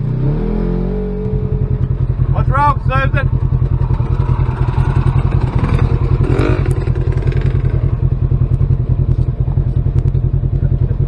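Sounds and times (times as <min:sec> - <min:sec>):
engines idling: 0:00.0 - 0:11.0.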